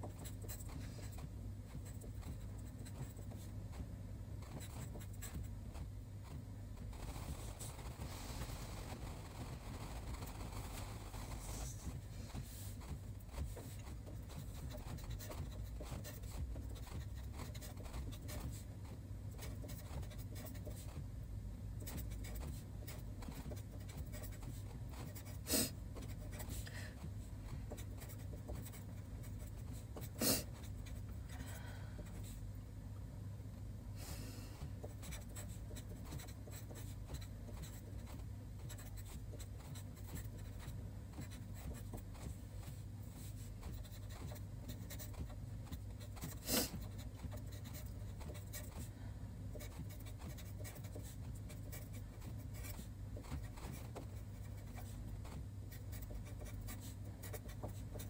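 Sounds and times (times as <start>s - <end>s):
marker pen scratching on paper: 0.0s - 21.1s, 21.8s - 31.4s, 34.6s - 48.9s, 49.5s - 58.0s.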